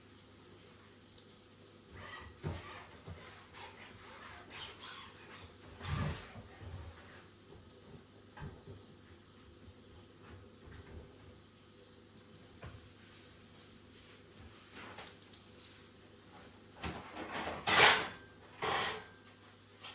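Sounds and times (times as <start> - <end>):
dishes clattering at a sink: 2.0 - 3.3, 16.8 - 19.2.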